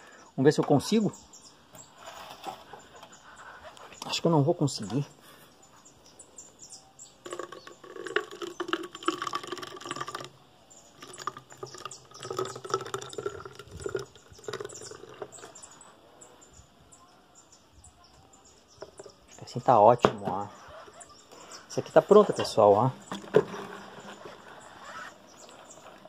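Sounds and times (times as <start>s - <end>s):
juice gurgling into a bottle: 7.2s - 15.6s.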